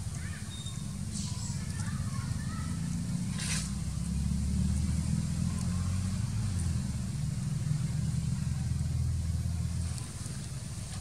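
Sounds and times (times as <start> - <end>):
engine idling hum: 0.0 - 11.0.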